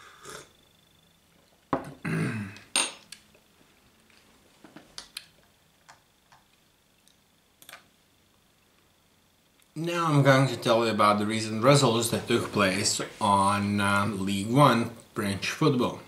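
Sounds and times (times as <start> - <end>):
glass set down clinking: 1.7 - 2.0, 2.7 - 3.0.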